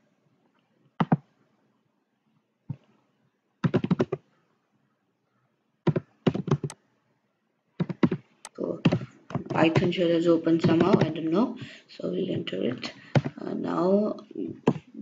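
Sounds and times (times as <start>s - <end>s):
keyboard typing: 1.0s - 1.3s, 3.6s - 4.3s, 5.8s - 6.8s, 7.8s - 13.4s, 14.6s - 15.0s.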